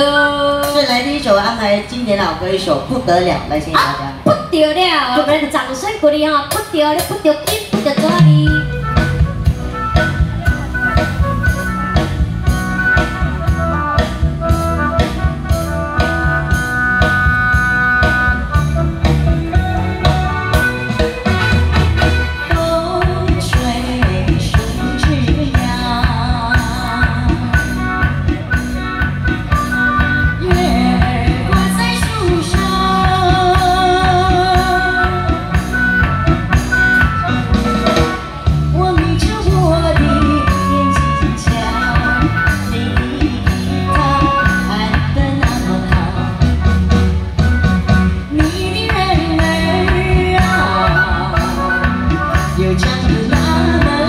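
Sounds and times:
amplified music with drum beat: 0:06.5 - 0:54.0
woman singing into microphone: 0:22.3 - 0:28.1, 0:30.3 - 0:36.0, 0:38.6 - 0:46.8, 0:48.2 - 0:54.0.

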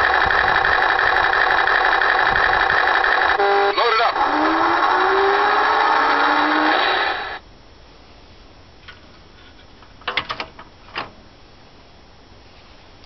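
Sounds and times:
buzzy toy truck sound: 0:00.0 - 0:07.4
sharp clicks and knocks: 0:08.8 - 0:11.2.

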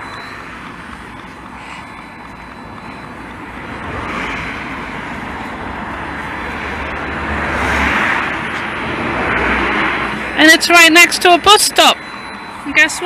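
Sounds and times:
vehicle passing: 0:00.0 - 0:13.0.

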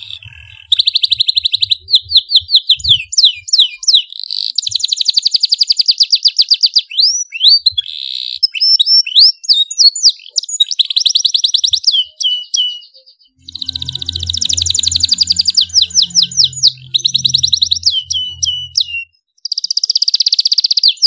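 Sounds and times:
canary singing trills: 0:10.3 - 0:20.9.

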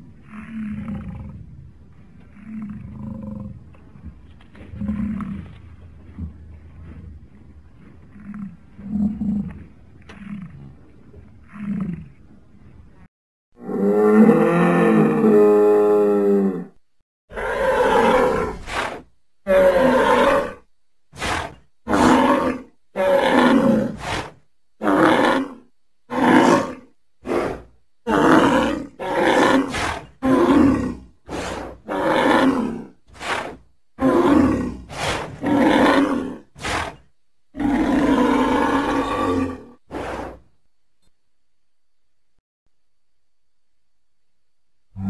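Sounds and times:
bison grunting: 0:26.2 - 0:40.4.

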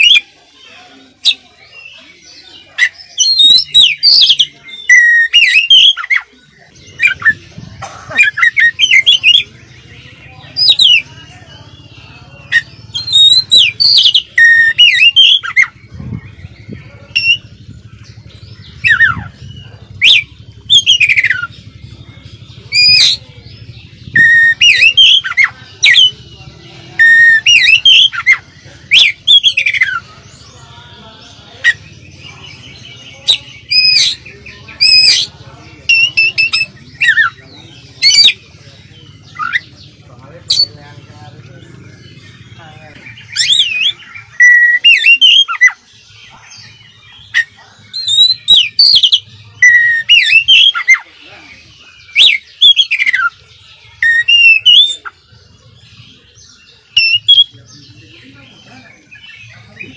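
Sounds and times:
bird singing whistled phrases: 0:02.8 - 0:06.3, 0:12.5 - 0:15.8, 0:24.1 - 0:26.2, 0:32.8 - 0:38.4, 0:43.2 - 0:51.0, 0:52.0 - 0:53.4, 0:54.0 - 0:55.2, 0:56.6 - 0:57.6.

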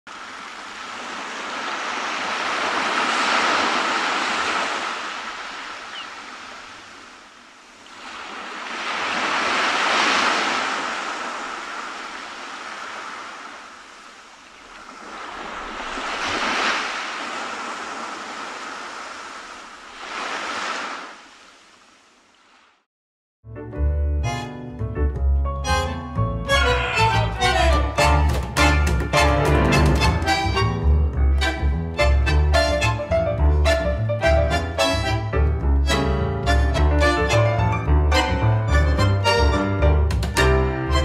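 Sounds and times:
surf washing onto beach: 0:00.1 - 0:22.8.

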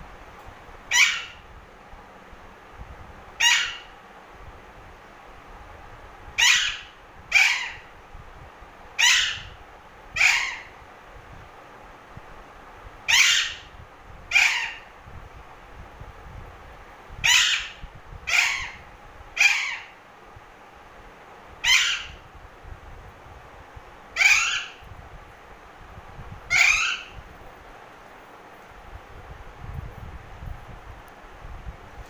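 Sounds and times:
parakeet squawking: 0:00.9 - 0:01.4, 0:03.4 - 0:03.9, 0:06.4 - 0:07.9, 0:09.0 - 0:09.6, 0:10.2 - 0:10.8, 0:13.1 - 0:13.7, 0:14.3 - 0:14.9, 0:17.2 - 0:18.8, 0:19.4 - 0:20.0, 0:21.6 - 0:22.2, 0:24.2 - 0:24.8, 0:26.5 - 0:27.2.

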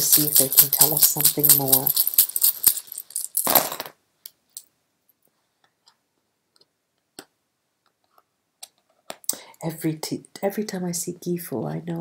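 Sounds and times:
runes clattering on table: 0:00.0 - 0:04.7.

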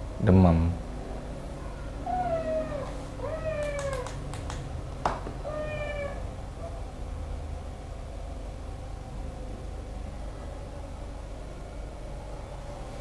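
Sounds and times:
kitten meowing: 0:02.0 - 0:04.2, 0:05.4 - 0:06.2.

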